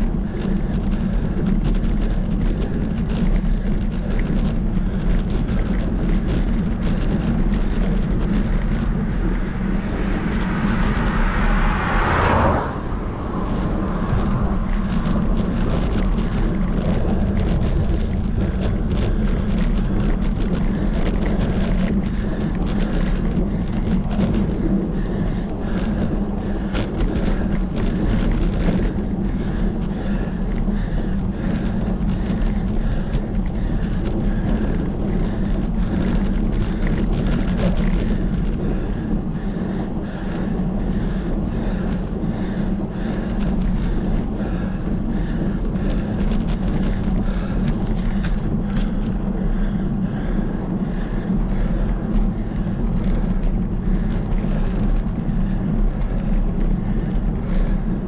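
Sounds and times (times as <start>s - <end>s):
road noise: 0.0s - 58.0s
wind buffeting microphone: 0.0s - 58.0s
rushing noise: 5.7s - 32.4s.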